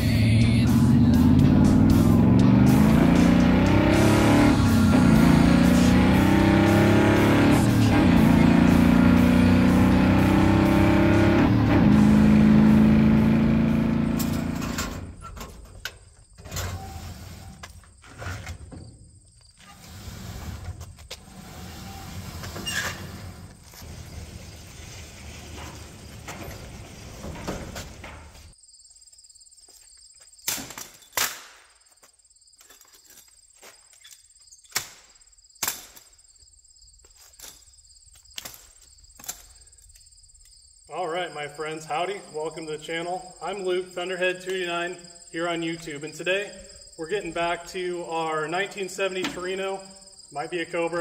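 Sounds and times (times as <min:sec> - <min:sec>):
insects chirring: 0:15.1 - 0:20.0, 0:28.5 - 0:51.0
sheet metal doors clanking and rattling: 0:19.9 - 0:28.5.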